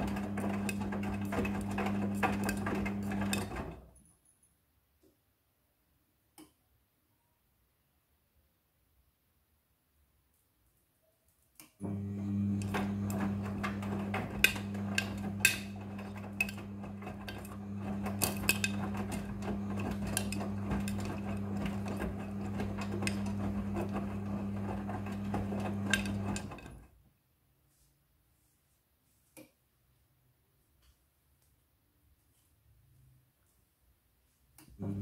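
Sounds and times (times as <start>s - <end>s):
washing machine motor hum: 0.0s - 3.9s, 11.8s - 26.9s, 34.7s - 35.0s.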